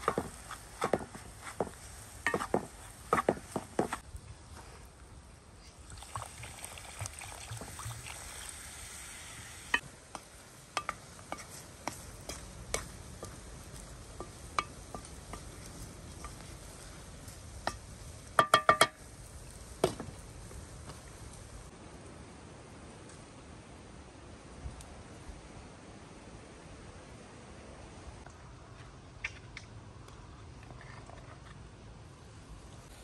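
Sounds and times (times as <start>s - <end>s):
liquid sizzling in hot pot: 0.0s - 4.0s, 5.9s - 21.7s
wooden spatula stirring in pot: 0.0s - 4.0s, 9.7s - 20.0s.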